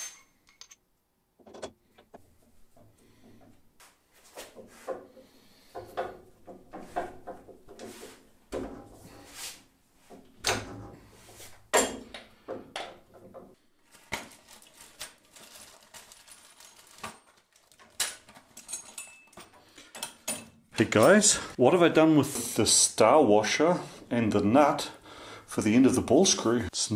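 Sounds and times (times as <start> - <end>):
metal parts clicking and scraping: 0.0 - 0.8, 1.4 - 2.2, 14.5 - 21.3
metal parts rattling in plastic tub: 14.3 - 21.4.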